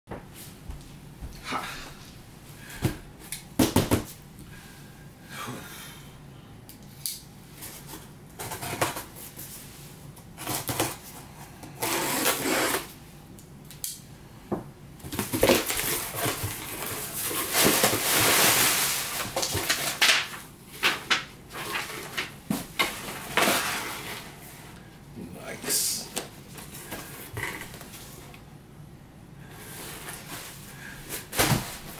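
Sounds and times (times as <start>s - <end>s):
packing tape tearing: 11.7s - 12.9s.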